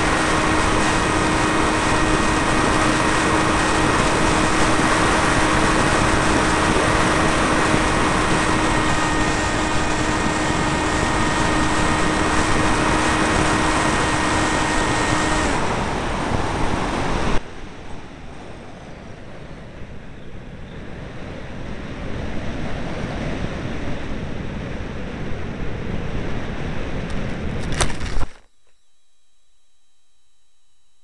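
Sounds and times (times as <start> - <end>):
air rushing: 0.0 - 17.4
model plane motor whine: 0.0 - 17.4
wind noise: 0.0 - 28.4.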